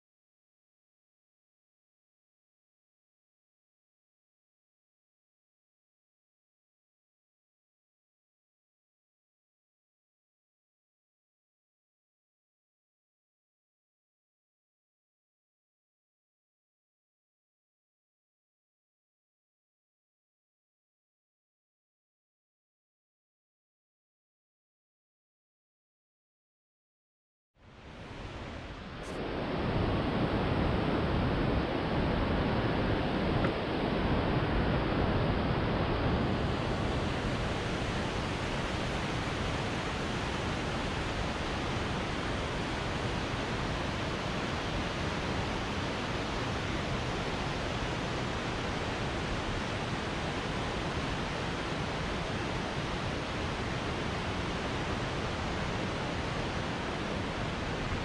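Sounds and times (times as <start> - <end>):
waterfall rushing: 28.0 - 58.0.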